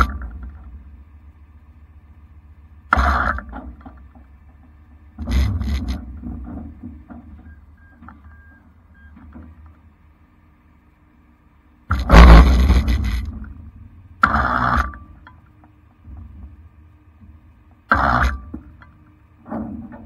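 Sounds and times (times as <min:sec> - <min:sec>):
short loud noisy bursts: 0:11.9 - 0:13.3.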